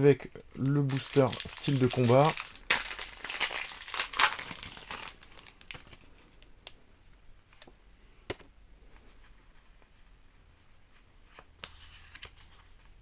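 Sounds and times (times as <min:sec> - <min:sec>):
foil wrapper tearing and crinkling: 0:00.8 - 0:06.0.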